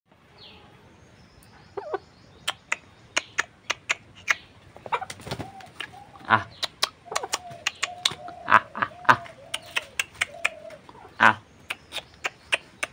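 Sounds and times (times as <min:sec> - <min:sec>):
chicken calling: 0:01.7 - 0:12.9
sharp clicks: 0:06.6 - 0:08.2, 0:09.6 - 0:10.6.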